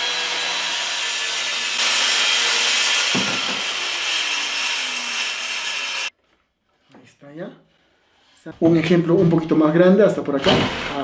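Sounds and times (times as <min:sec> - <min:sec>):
circular saw cutting wood: 0:00.0 - 0:06.2.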